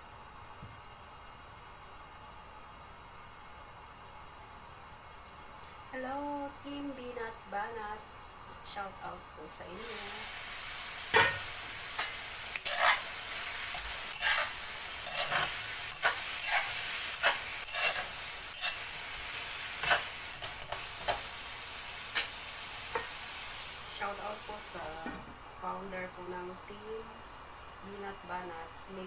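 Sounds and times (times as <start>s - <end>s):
food sizzling in a wok: 3.2s - 29.0s
spatula scraping a wok: 10.3s - 21.3s, 22.1s - 23.6s.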